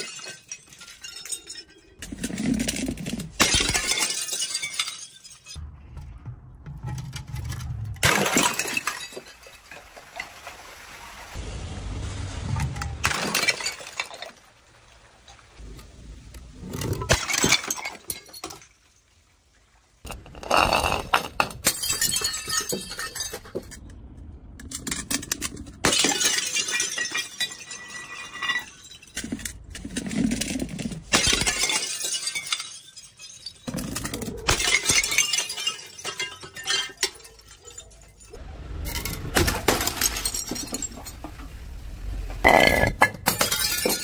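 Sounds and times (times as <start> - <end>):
beads and glass skittering: 0.0 - 5.6, 30.2 - 41.3
glass bottles shattering on stairs: 0.0 - 5.6, 6.9 - 9.9, 13.0 - 14.4, 17.0 - 18.9, 20.1 - 23.9, 24.7 - 41.6, 42.4 - 44.0.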